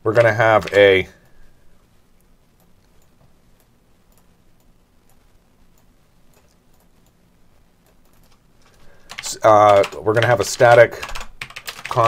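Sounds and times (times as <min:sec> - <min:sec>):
low steady hum: 0:00.0 - 0:12.0
computer mouse clicks: 0:00.2 - 0:01.4, 0:05.8 - 0:07.2.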